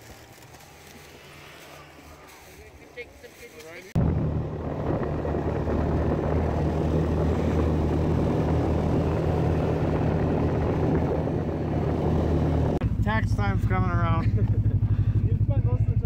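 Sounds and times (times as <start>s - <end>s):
snowmobile track rushing noise: 0.0s - 16.0s
snowmobile engine running: 3.8s - 16.0s.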